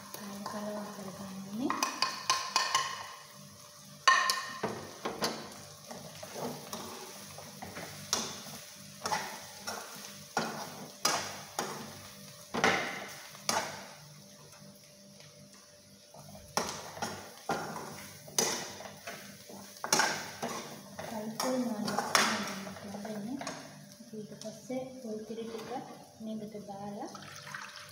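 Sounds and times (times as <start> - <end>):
low sizzle: 0.0 - 27.9
spoon scraping a frying pan: 4.0 - 12.0, 16.1 - 23.8.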